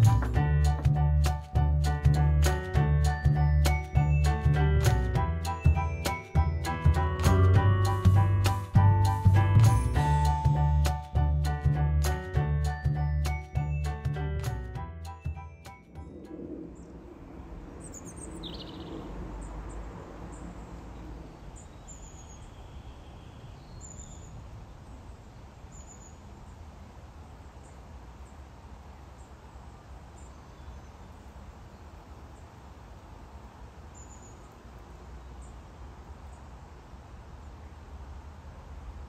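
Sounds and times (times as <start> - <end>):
birds chirping: 15.2 - 26.3.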